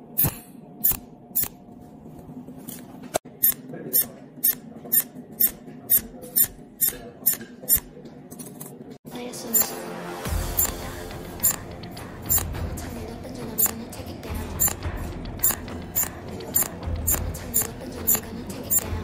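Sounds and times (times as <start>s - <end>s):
welding machine snapping: 11.4s - 11.7s.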